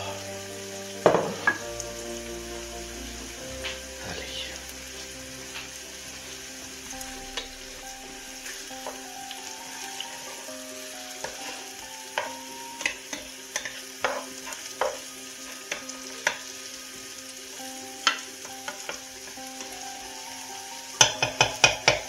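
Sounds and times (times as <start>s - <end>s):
food sizzling in a pan: 0.0s - 22.0s
spatula scraping and knocking pan: 11.2s - 15.1s.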